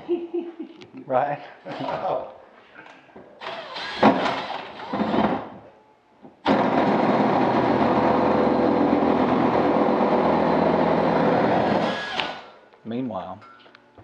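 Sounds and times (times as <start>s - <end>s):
cordless drill boring plastic: 11.8s - 12.4s.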